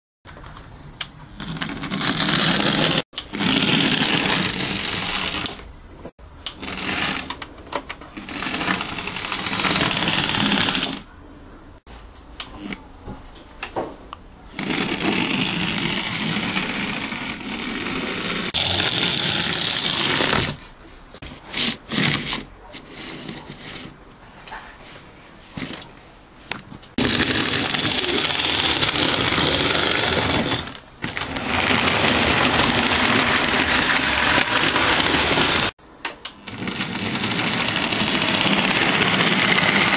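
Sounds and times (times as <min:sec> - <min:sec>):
electric motor whirring: 0:14.6 - 0:20.6, 0:27.0 - 0:35.7, 0:36.4 - 0:39.9
wheels clicking on rails: 0:27.0 - 0:39.9.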